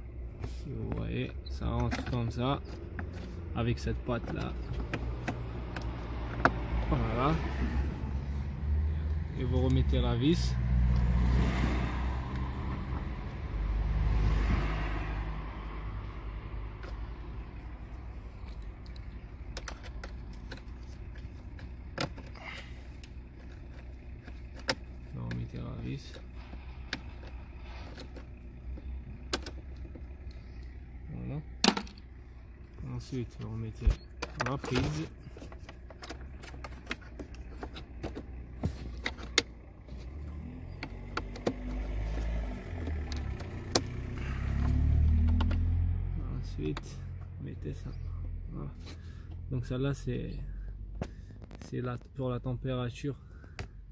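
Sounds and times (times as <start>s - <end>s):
parts clicking and knocking: 0.9s - 6.8s, 16.7s - 30.8s, 31.5s - 45.7s.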